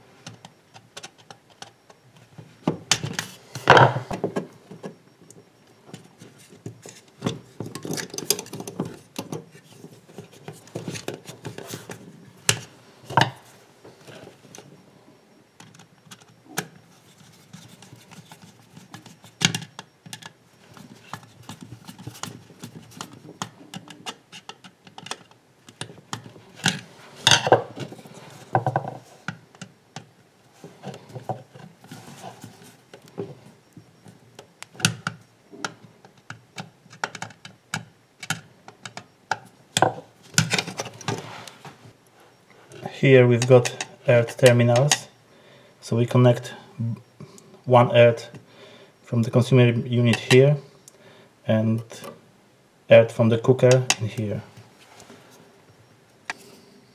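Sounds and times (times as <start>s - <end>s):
cables and switch plate handled: 5.9s - 13.4s.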